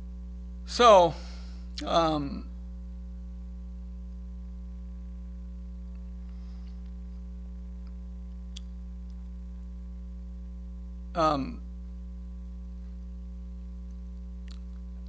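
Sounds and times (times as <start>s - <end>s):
electrical mains hum: 0.0s - 15.0s.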